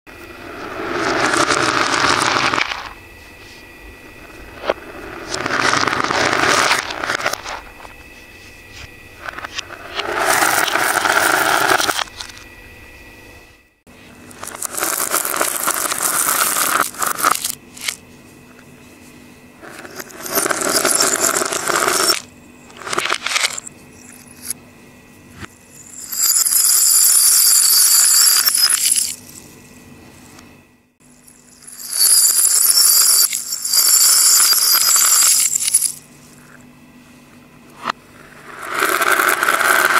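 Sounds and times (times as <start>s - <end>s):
reversed beads rattling in bowl: 0.4s - 3.0s, 4.5s - 7.6s, 9.2s - 12.0s, 14.4s - 18.0s, 19.6s - 24.5s, 25.8s - 29.4s, 31.2s - 36.0s, 38.2s - 39.9s
small metal bells jingling: 25.7s - 29.4s, 31.1s - 36.0s.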